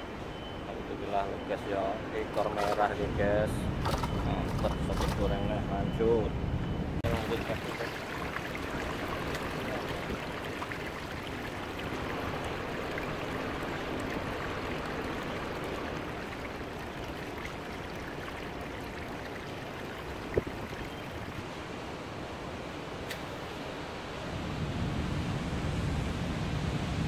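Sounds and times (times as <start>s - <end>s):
river water flowing: 7.0s - 24.3s.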